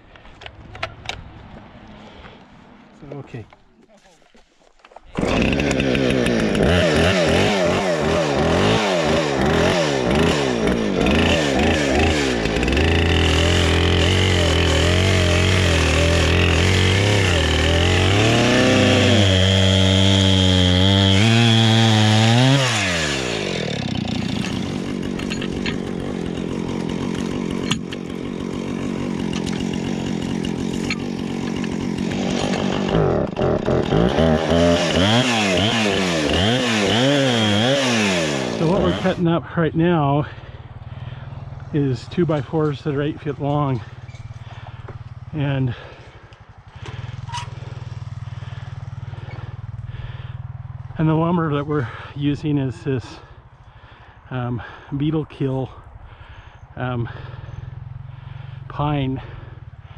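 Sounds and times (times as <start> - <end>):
chainsaw cutting log: 5.0 - 39.4, 41.0 - 52.1.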